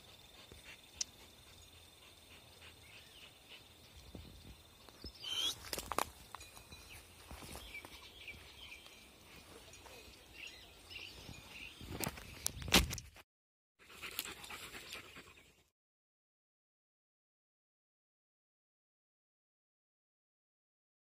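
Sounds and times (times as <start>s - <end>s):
faint bird chirps: 0.3s - 5.7s
footsteps through dry grass: 4.3s - 10.1s.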